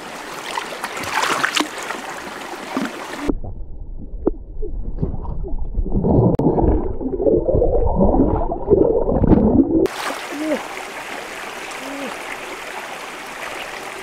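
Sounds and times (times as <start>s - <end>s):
stream water running: 0.0s - 3.3s, 9.8s - 14.0s.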